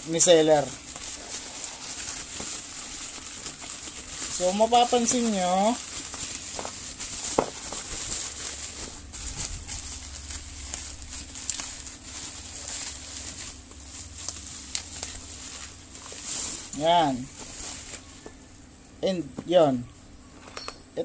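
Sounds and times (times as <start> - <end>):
bubble wrap crinkling: 0.0 - 18.7.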